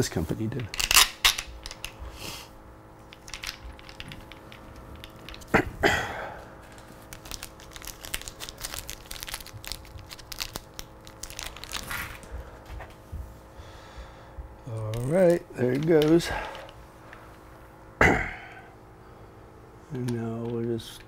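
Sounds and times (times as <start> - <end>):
light clicks of small parts: 19.9 - 21.0.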